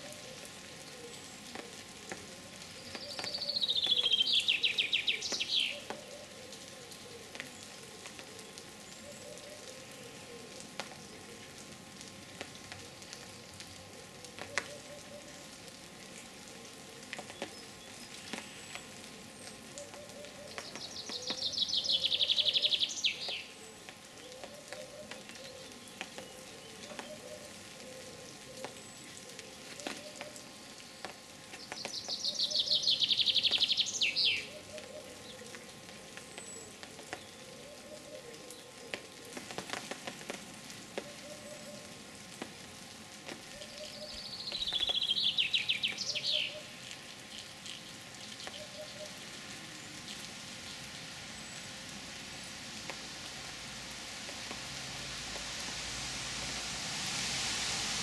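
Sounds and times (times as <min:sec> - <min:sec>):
songbird trilling: 0:21.0 - 0:23.4.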